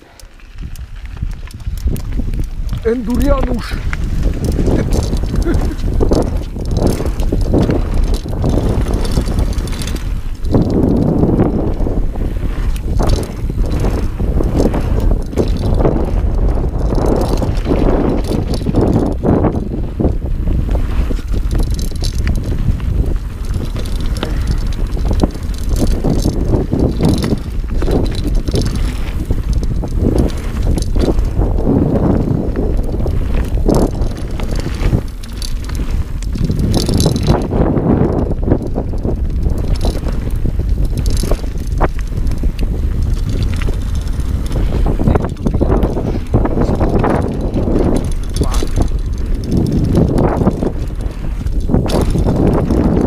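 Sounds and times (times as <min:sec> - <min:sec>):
bike rattling and knocking: 0:00.0 - 0:53.0
bike tyres rumbling on dirt: 0:00.0 - 0:53.0
wind buffeting microphone: 0:00.0 - 0:53.0.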